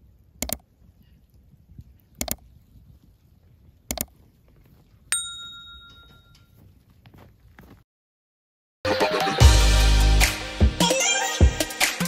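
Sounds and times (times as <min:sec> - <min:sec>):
mouse clicks: 0:00.4 - 0:00.6, 0:02.1 - 0:02.4, 0:03.9 - 0:04.1
bright bell ding: 0:05.1 - 0:06.5.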